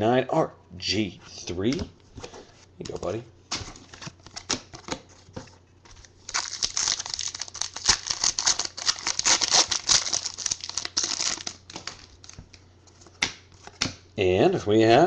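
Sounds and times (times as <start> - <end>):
foil wrapper tearing and crinkling: 6.2 - 12.4.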